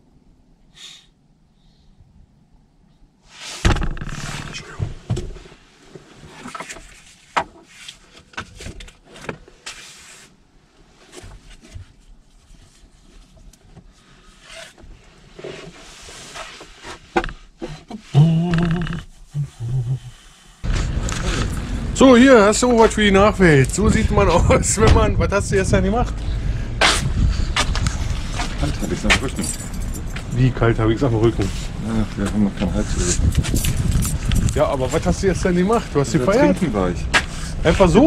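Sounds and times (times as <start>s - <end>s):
low grunt: 17.7s - 20.2s.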